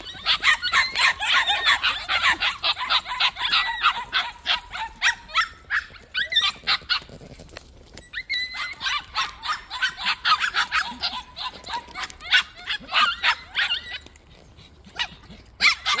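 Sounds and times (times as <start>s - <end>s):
puppies yapping: 0.0s - 16.0s.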